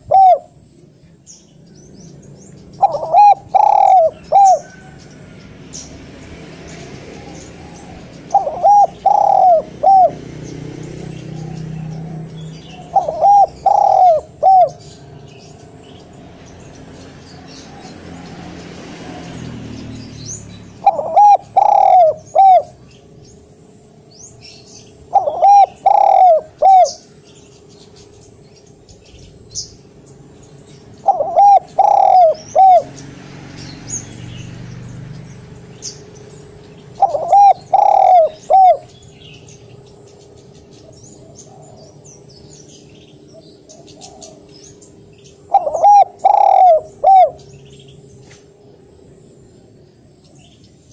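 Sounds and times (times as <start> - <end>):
dove cooing: 0.0 - 0.6, 2.7 - 5.0, 7.1 - 15.8, 20.7 - 22.9, 24.4 - 27.4, 31.0 - 33.0, 36.8 - 39.5, 40.8 - 42.4, 43.3 - 44.8, 45.4 - 47.8
small birds chirping: 0.0 - 50.9.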